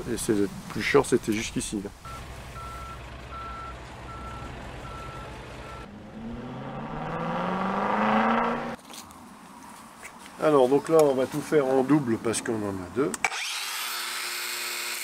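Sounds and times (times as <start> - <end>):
low engine rumble: 0.0 - 8.7
reversing alarm beeping: 2.1 - 6.0
engine revving up: 2.1 - 8.8.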